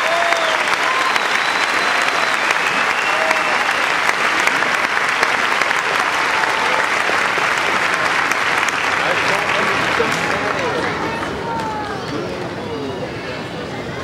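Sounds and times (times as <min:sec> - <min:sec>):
audience applauding: 0:00.0 - 0:12.4
whistles: 0:00.3 - 0:03.8.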